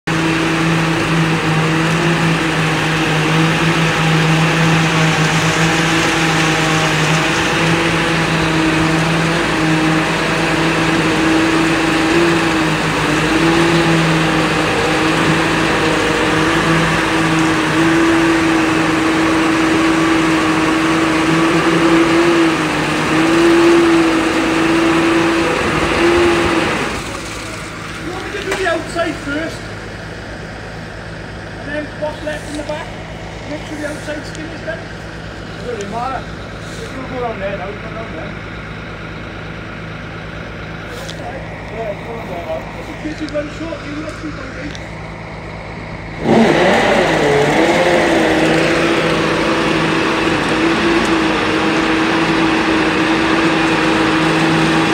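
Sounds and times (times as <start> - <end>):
concrete rushing down chute: 0.1 - 29.7, 45.8 - 54.9
concrete conveyor engine hum: 0.1 - 54.9.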